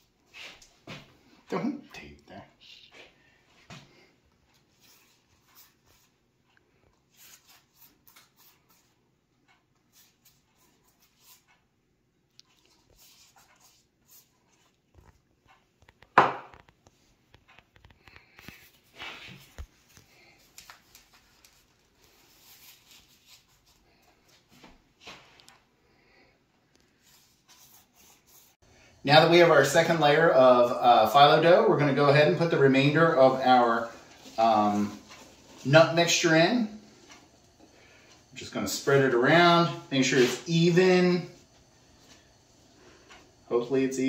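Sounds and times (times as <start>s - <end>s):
pastry brush swishing on dough: 7.1s - 9.0s, 27.0s - 28.6s, 38.5s - 42.3s
dough sheets rustling: 12.5s - 25.6s, 31.4s - 44.0s.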